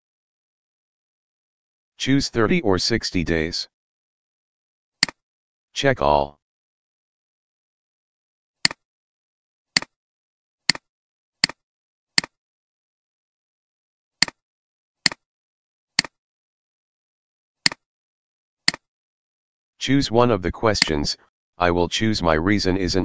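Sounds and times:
computer mouse clicking: 10.7s - 11.6s, 18.7s - 18.9s.

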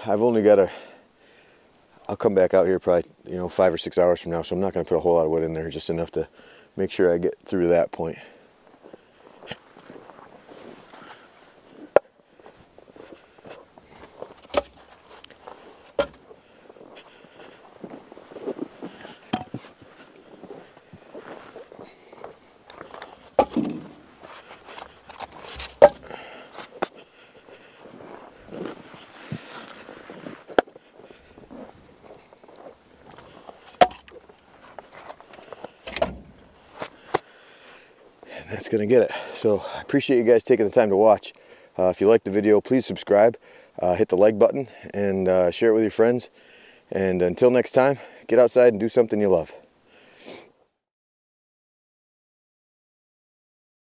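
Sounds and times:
footsteps in snow: 8.7s - 35.8s
wooden logs knocking: 14.4s - 15.0s, 15.9s - 16.3s, 19.3s - 19.7s, 22.8s - 24.1s, 24.7s - 26.9s, 33.7s - 34.3s, 35.8s - 36.5s
firewood knocking against steel firebox: 23.4s - 24.0s, 25.6s - 26.2s.

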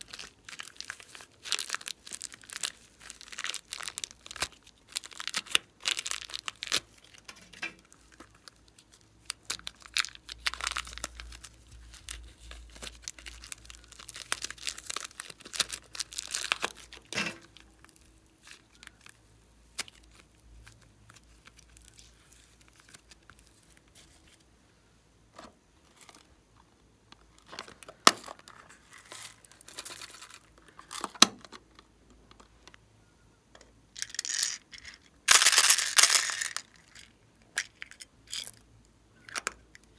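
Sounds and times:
plastic zip bag crinkling: 0.0s - 24.4s, 27.3s - 31.2s, 34.0s - 37.2s.

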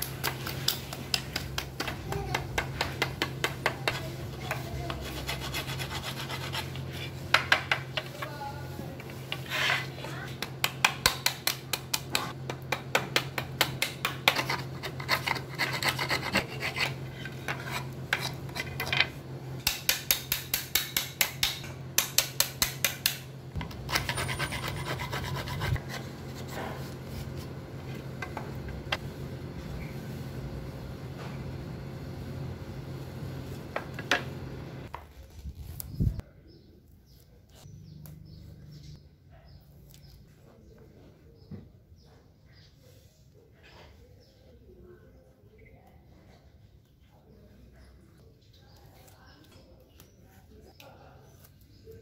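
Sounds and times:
chisel scraping wood: 2.2s - 8.3s, 9.0s - 10.2s, 14.0s - 19.2s, 23.6s - 28.8s
sandpaper rubbing on wood: 3.8s - 7.3s, 23.9s - 27.6s.

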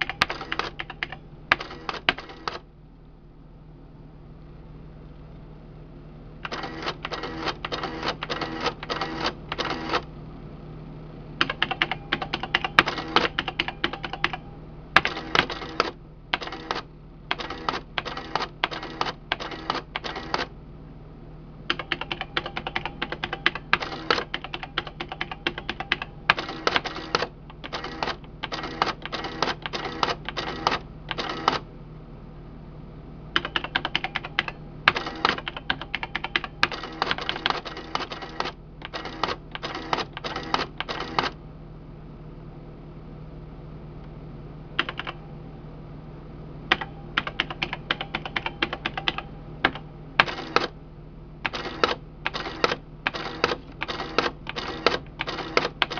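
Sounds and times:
calculator print mechanism clattering: 0.0s - 2.6s, 6.4s - 10.1s, 11.4s - 14.4s, 15.0s - 20.5s, 21.7s - 31.7s, 33.4s - 41.4s, 46.7s - 50.8s, 51.4s - 55.9s
steady low hum: 0.0s - 55.9s.

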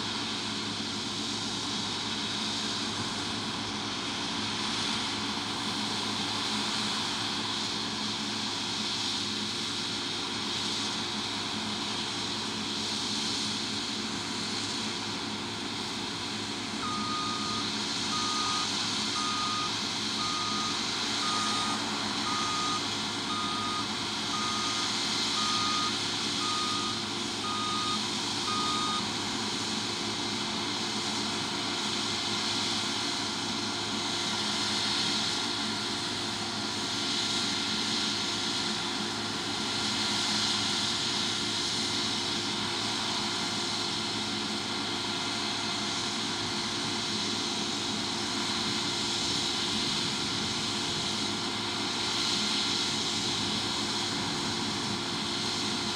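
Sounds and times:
harvest machinery engine hum: 0.0s - 55.9s
reversing alarm beeping: 16.8s - 29.1s.

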